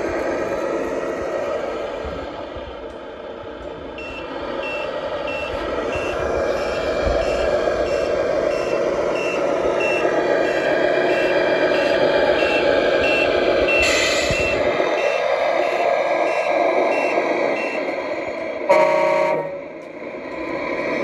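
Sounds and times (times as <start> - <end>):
toy diesel engine sound: 0.0 - 21.0
reversing beeper: 4.0 - 17.9.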